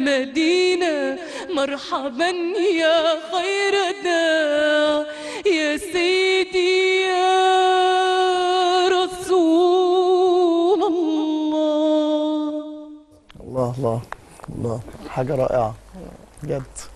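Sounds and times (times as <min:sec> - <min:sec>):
woman singing into a microphone: 0:00.0 - 0:13.1.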